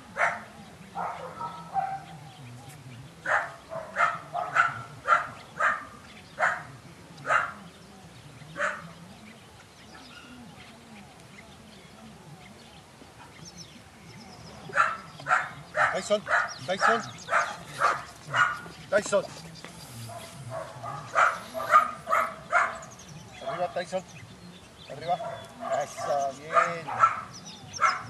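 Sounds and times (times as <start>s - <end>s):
dog barking: 0.1s - 2.2s, 3.2s - 7.6s, 8.6s - 8.9s, 14.7s - 18.7s, 20.1s - 23.8s, 25.1s - 28.0s.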